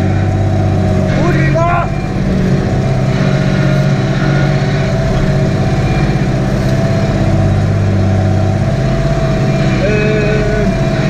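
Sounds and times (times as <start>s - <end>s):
constant whine: 0.0s - 11.0s
tractor diesel engine drone: 0.0s - 11.0s.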